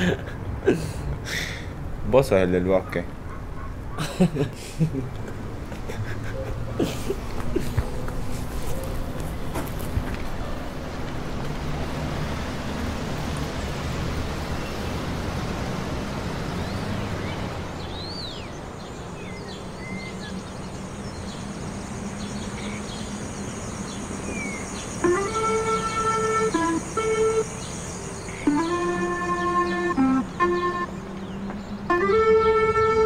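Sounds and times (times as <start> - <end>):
outdoor noise wash: 0.0 - 33.0
bird chirps: 16.3 - 33.0
music notes: 25.0 - 33.0.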